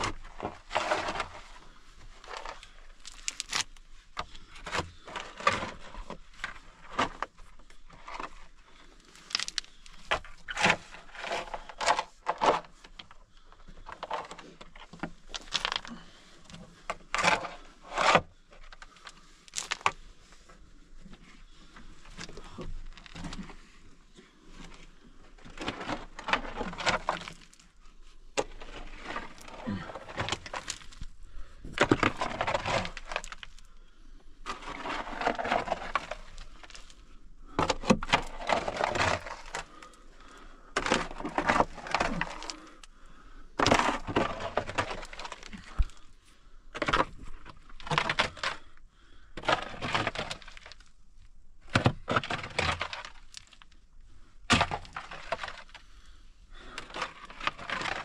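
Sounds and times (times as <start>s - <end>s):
shovel digging stony earth: 0.0s - 7.3s, 9.2s - 12.8s, 28.4s - 33.7s, 34.4s - 40.1s, 40.7s - 42.9s, 43.6s - 46.0s, 49.4s - 50.8s, 54.4s - 55.8s, 56.7s - 58.0s.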